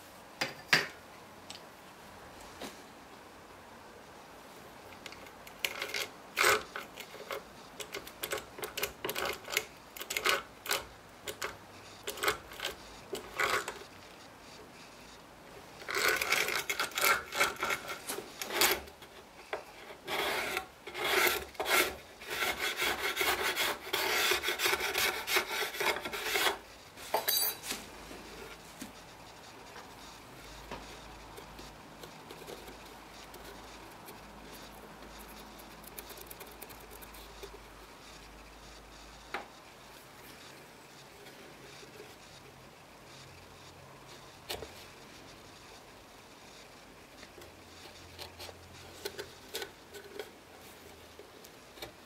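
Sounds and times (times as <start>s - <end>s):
hand tool scraping wood: 15.8s - 18.9s, 19.8s - 27.8s.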